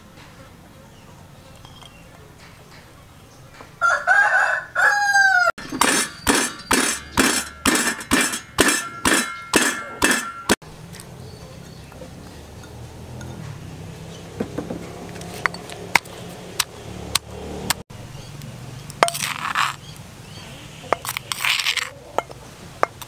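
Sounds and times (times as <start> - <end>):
rooster crowing: 3.8 - 5.6
pestle pounding in stone mortar: 5.6 - 10.6.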